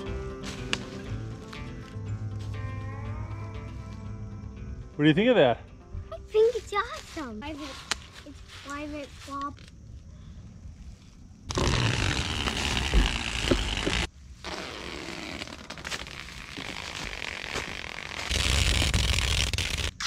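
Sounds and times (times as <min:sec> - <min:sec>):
duct tape crinkling and rustling: 0:09.3 - 0:09.8, 0:11.5 - 0:20.0.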